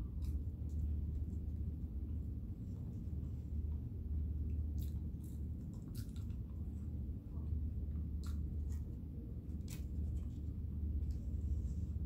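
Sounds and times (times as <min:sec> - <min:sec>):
steady low hum: 0:00.0 - 0:12.0
person chewing fries: 0:04.5 - 0:07.0, 0:08.0 - 0:11.2.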